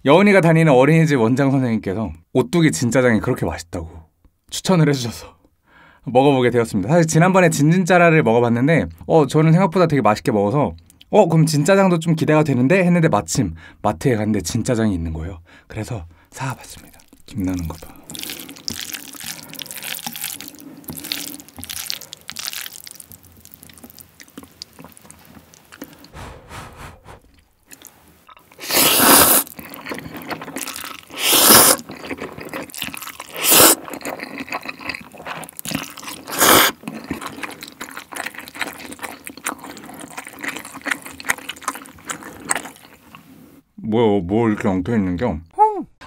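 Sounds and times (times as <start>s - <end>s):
chewing: 16.7s - 43.4s
chopsticks stirring sticky noodles: 17.3s - 26.1s, 28.6s - 42.9s
loud noodle slurps: 18.0s - 23.6s, 24.9s - 27.9s, 28.5s - 42.9s.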